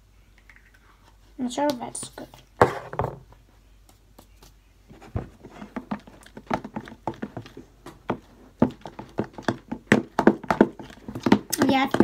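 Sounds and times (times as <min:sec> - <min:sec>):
slime stirred in plastic tub: 0:05.3 - 0:12.0.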